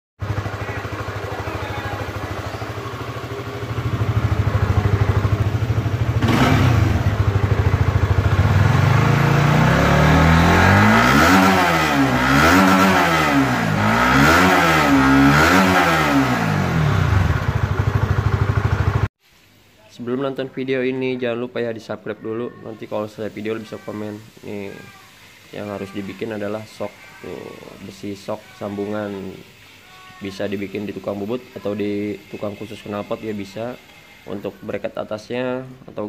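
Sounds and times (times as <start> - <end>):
motorcycle engine revving: 0.2 - 19.1.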